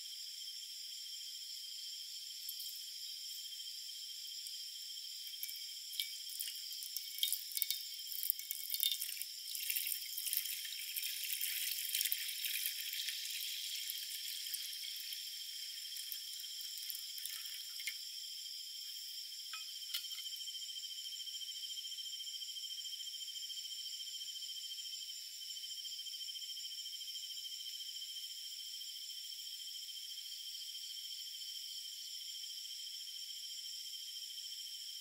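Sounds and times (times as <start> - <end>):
insect chirring: 0.1 - 21.8
water pouring into a pan: 2.5 - 2.8, 5.2 - 18.0.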